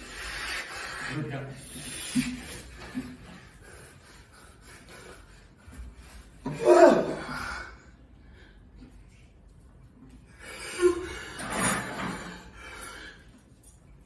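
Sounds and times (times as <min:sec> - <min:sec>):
strained breaths: 0:00.0 - 0:06.5, 0:10.1 - 0:14.0
man crying out in pain: 0:06.5 - 0:07.7.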